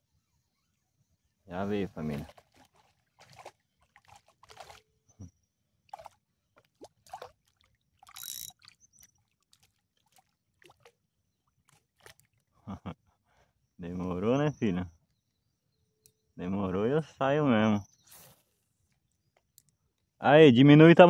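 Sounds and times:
small water splashes and drips: 2.0s - 5.2s, 5.8s - 12.6s.

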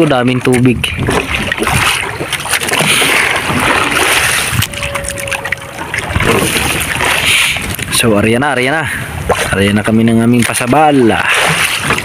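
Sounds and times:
sea water splashing against boat hull: 0.0s - 8.1s, 10.4s - 12.0s.

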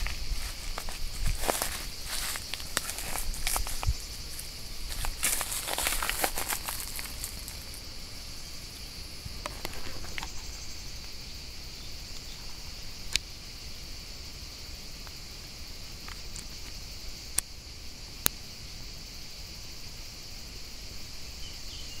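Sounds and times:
rustling of leafy undergrowth: 0.0s - 13.1s
high insect drone: 0.0s - 22.0s.

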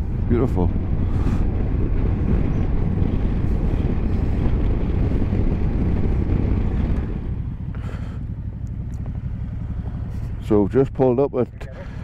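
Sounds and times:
wind noise: 0.0s - 7.4s
motorcycle engine: 0.0s - 12.0s.

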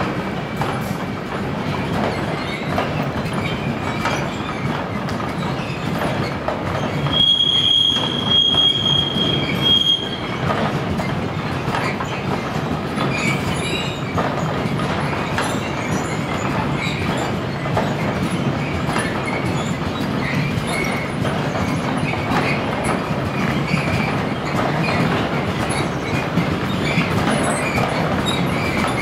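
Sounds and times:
freight train rolling past: 0.0s - 29.0s
wheels clicking over rail joints: 0.0s - 29.0s
high wheel squeal: 6.9s - 10.5s.

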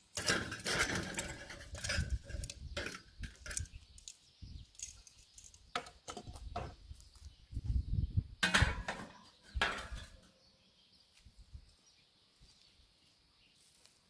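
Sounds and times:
metal grate clattering: 0.1s - 3.7s, 8.4s - 10.3s.

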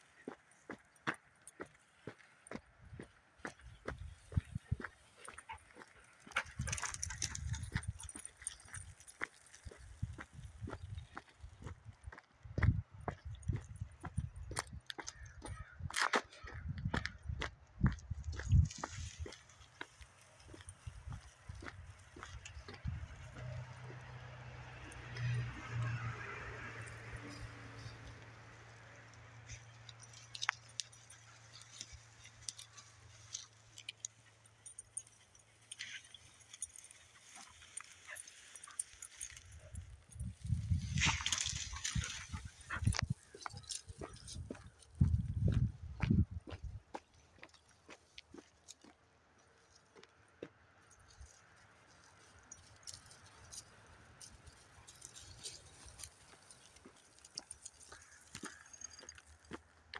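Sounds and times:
dogs rustling through dry grass: 3.4s - 11.8s, 18.4s - 45.6s, 50.9s - 59.8s
footsteps on dry pine needles: 18.1s - 24.3s, 35.6s - 48.9s.

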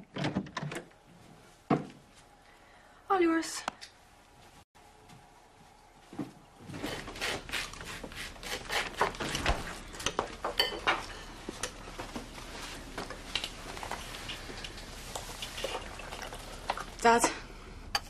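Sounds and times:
plates and cutlery clinking: 10.2s - 11.7s.

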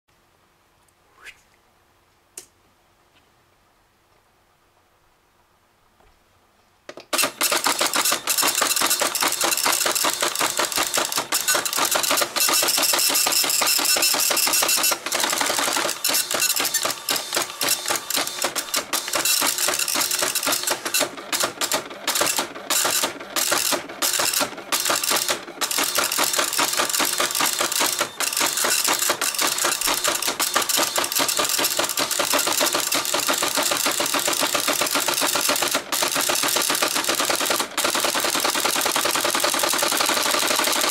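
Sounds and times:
dot matrix printer rattling: 7.1s - 40.9s.

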